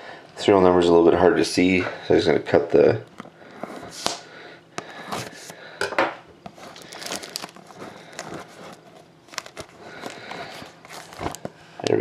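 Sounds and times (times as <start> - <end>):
plastic shrink wrap crinkling: 6.5 - 12.0
plastic wrap tearing: 6.6 - 11.5.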